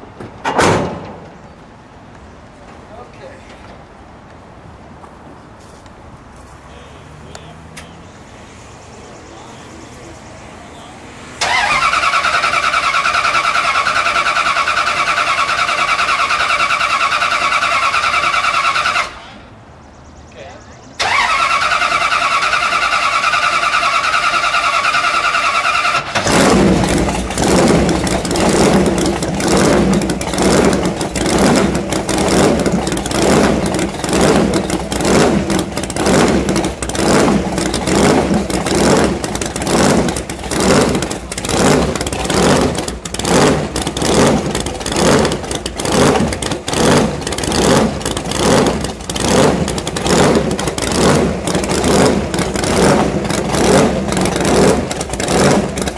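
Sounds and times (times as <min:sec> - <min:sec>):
engine revving loud and rough: 0:11.4 - 0:19.4, 0:21.0 - 0:55.9.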